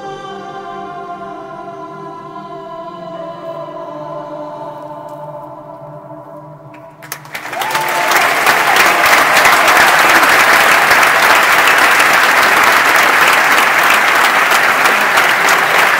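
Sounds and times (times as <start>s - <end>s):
audience applause: 7.0s - 15.9s
person cheering: 7.4s - 11.4s.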